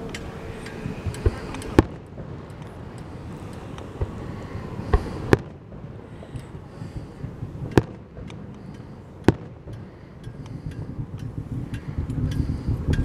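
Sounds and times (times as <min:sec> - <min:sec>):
firework shells bursting: 0:00.0 - 0:13.0
crackling firework pops: 0:00.1 - 0:04.2, 0:04.9 - 0:13.0.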